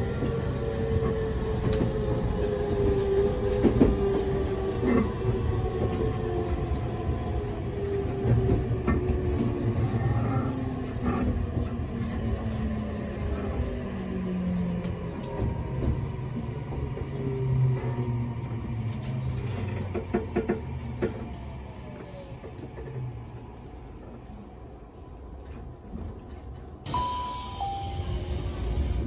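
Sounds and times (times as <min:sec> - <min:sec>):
two-note falling chime: 0:26.9 - 0:28.3.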